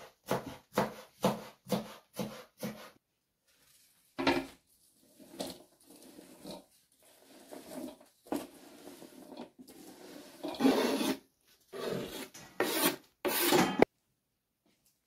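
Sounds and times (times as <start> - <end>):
knife scraping on cutting board: 7.2 - 13.9.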